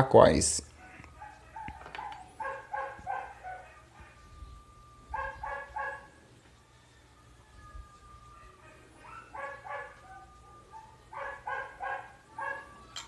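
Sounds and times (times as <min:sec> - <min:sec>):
faint dog barking: 0:00.7 - 0:04.4, 0:05.1 - 0:06.2, 0:08.6 - 0:13.0.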